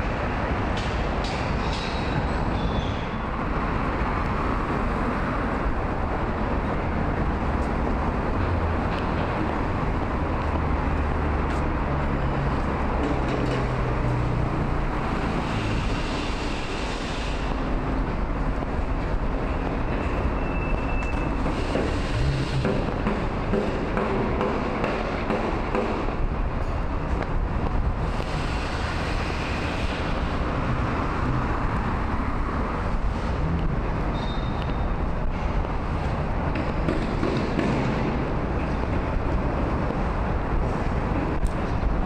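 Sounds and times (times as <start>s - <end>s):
passing vehicles hum: 0.0s - 42.0s.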